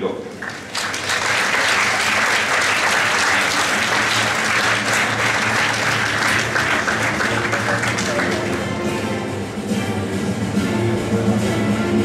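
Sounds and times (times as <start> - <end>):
audience applauding: 0.3 - 8.9.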